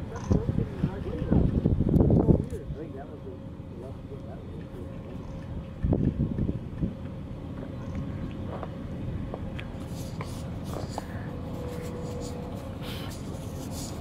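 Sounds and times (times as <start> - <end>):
wind buffeting microphone: 0.0 - 2.8, 5.4 - 9.8
faint steady hum: 0.0 - 14.0.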